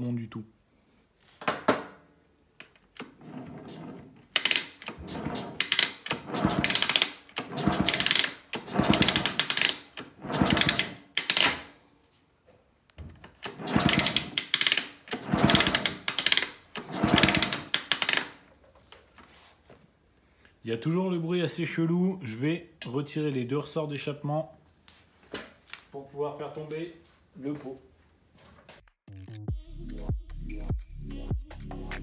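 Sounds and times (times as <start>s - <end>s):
engine turned over by kickstart: 4.4s - 11.0s, 13.4s - 18.1s
mechanical noise inside engine: 4.4s - 11.0s, 13.4s - 18.0s.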